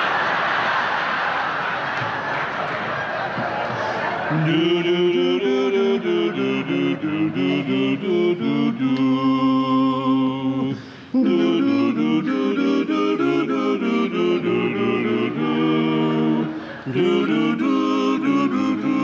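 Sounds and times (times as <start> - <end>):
men singing in close harmony: 4.3 - 19.0.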